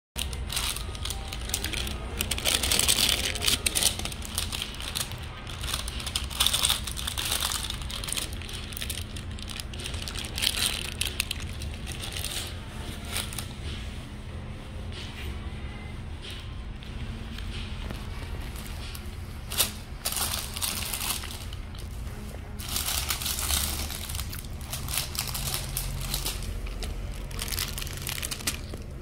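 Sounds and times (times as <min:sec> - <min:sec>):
wrapping paper crinkling: 0:00.2 - 0:13.9, 0:17.2 - 0:29.0
steady low hum: 0:00.2 - 0:29.0.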